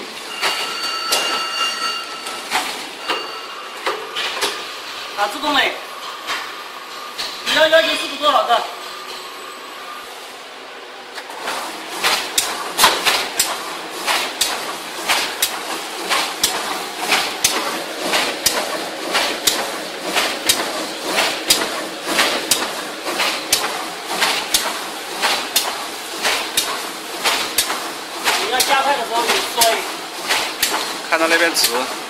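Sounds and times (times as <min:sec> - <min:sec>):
continuous mechanical hiss: 0:00.0 - 0:32.0
machine knocking rhythmically: 0:11.4 - 0:32.0.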